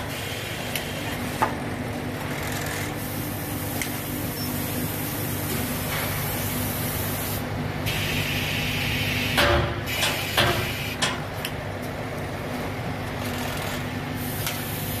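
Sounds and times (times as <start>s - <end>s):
machine mechanical hum: 0.0s - 15.0s
sharp pneumatic clacks: 2.2s - 11.6s, 13.2s - 15.0s
air hissing: 3.0s - 11.0s, 14.2s - 15.0s.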